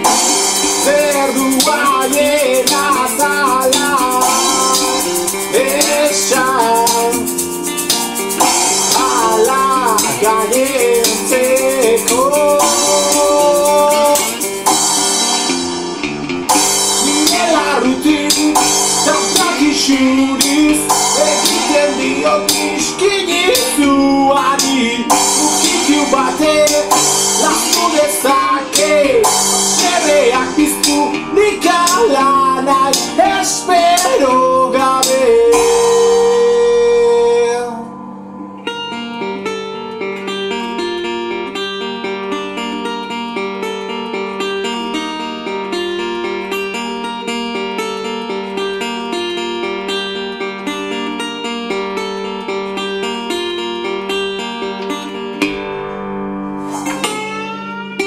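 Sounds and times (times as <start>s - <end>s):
man singing: 0.0s - 7.3s, 8.4s - 14.5s, 16.8s - 38.0s
drums with crashing cymbals: 0.0s - 23.9s, 24.6s - 32.1s, 32.8s - 33.3s, 56.6s - 57.3s
fingerpicked resonator guitar: 0.0s - 58.0s.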